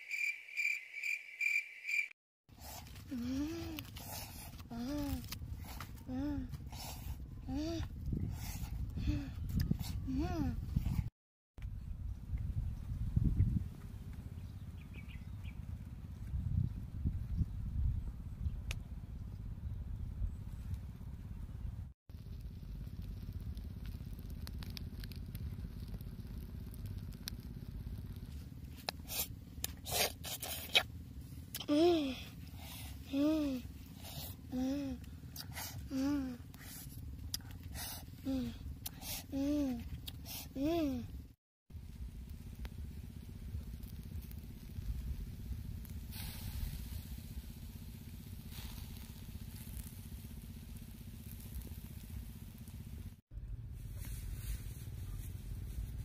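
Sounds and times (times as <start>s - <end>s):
charcoal fire crackling: 2.6s - 10.6s, 22.1s - 41.0s, 41.8s - 53.2s
steady low rumble: 2.6s - 29.7s, 40.9s - 56.0s
chicken sizzling on charcoal grill: 22.2s - 29.2s, 41.8s - 53.2s.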